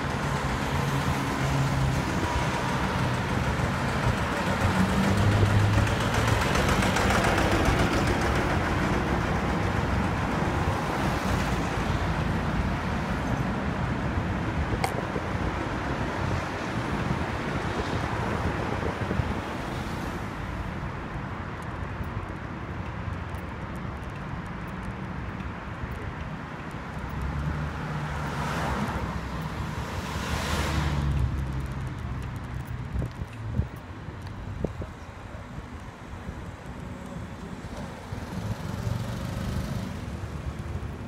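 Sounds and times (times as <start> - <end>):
street traffic: 0.0 - 41.0
wind buffeting microphone: 13.5 - 20.1, 31.1 - 38.5
vehicle passing: 27.1 - 33.6.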